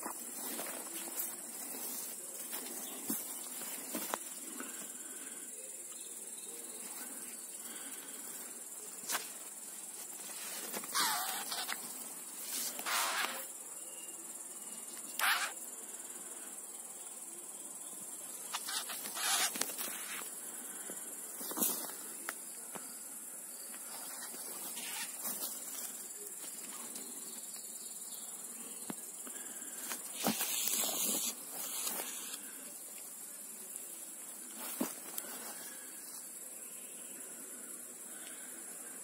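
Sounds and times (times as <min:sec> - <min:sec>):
grass rustling: 0:00.0 - 0:05.1, 0:06.8 - 0:13.5, 0:18.5 - 0:20.7, 0:23.8 - 0:27.1, 0:29.3 - 0:33.1, 0:33.7 - 0:36.3
insects chirring: 0:00.0 - 0:39.0.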